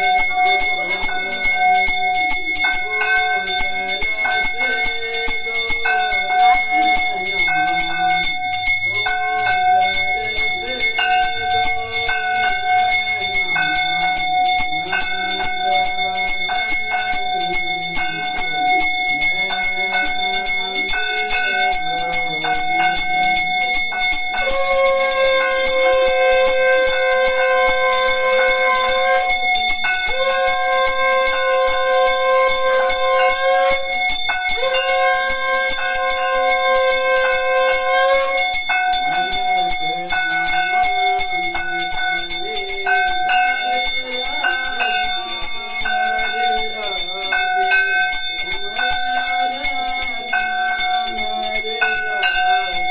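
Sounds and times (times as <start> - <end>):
brass hand bell ringing: 0.0 - 52.9
conch shell blasts: 24.2 - 39.6.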